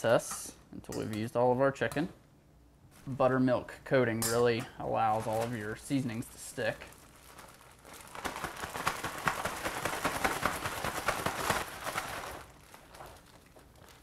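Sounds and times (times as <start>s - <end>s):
plastic bag crinkling: 5.0s - 14.0s.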